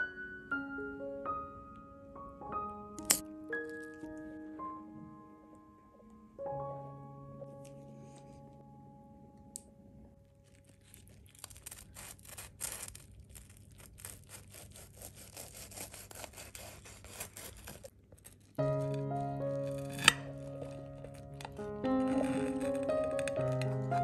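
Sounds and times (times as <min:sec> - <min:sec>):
knife sawing toasted bread: 0:13.8 - 0:17.9.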